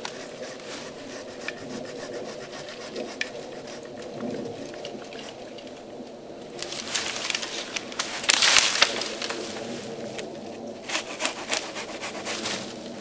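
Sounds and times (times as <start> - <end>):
wood snapping: 3.2 - 10.3, 10.9 - 12.1
tree crashing through brush: 6.6 - 10.3.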